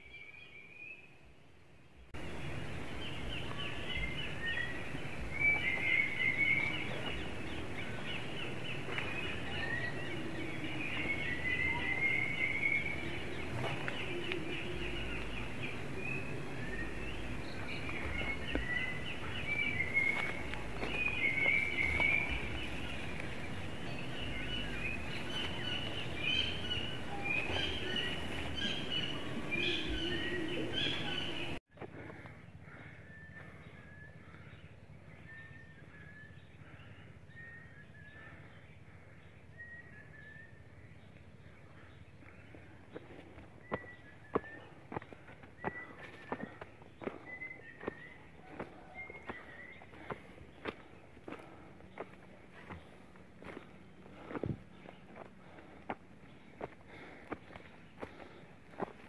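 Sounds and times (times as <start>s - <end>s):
birds chirping: 0.0s - 59.0s
steady background hiss: 0.1s - 31.6s
low rumbles: 2.1s - 59.0s.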